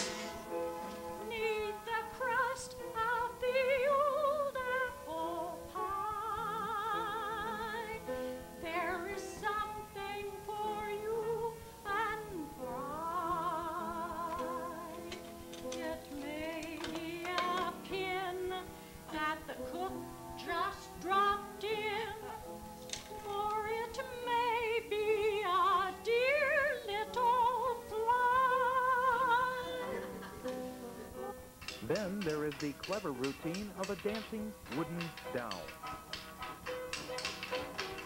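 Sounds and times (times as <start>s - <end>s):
elderly woman singing: 1.2s - 31.3s.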